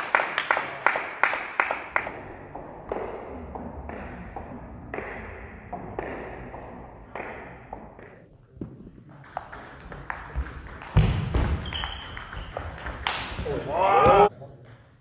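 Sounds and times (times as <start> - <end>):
player shouting: 13.6 - 14.3.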